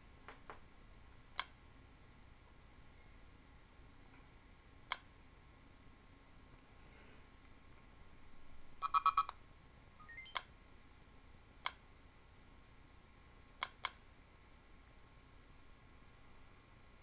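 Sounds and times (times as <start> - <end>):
rising string of little tones: 10.0 - 10.4
electronic beeps: 10.0 - 10.5.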